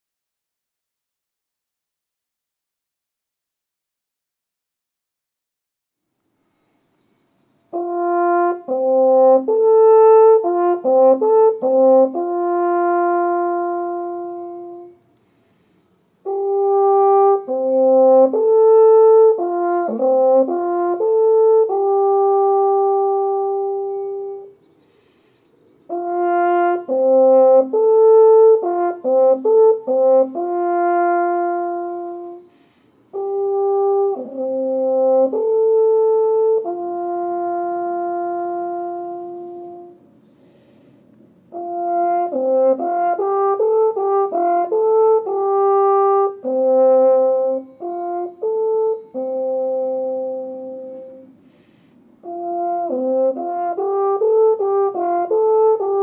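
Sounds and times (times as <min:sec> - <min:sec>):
wooden horn melody: 0:07.7 - 0:24.6, 0:25.9 - 0:56.0.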